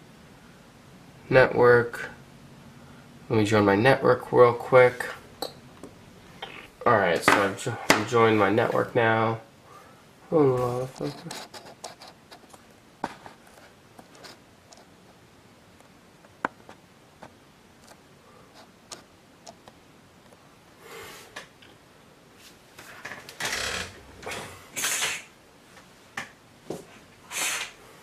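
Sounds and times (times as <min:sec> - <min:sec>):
rustling and shuffling: 0:06.5 - 0:09.2, 0:10.4 - 0:20.5, 0:22.3 - 0:24.7, 0:25.6 - 0:27.2.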